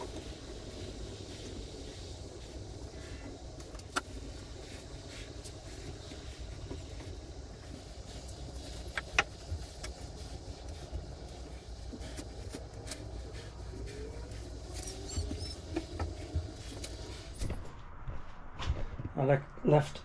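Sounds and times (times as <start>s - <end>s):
low rumble: 0.0s - 20.0s
knocks and scuffs: 13.9s - 19.2s.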